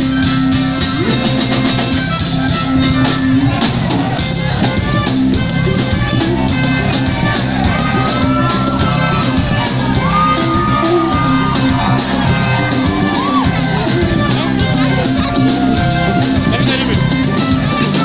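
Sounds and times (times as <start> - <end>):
live band playing: 0.0 - 18.0
violin: 0.0 - 18.0.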